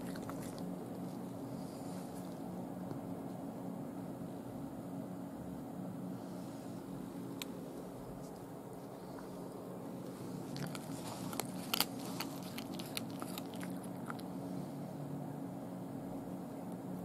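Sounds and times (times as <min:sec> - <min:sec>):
cat chewing with wet crunches: 0:00.0 - 0:03.1, 0:07.2 - 0:14.8.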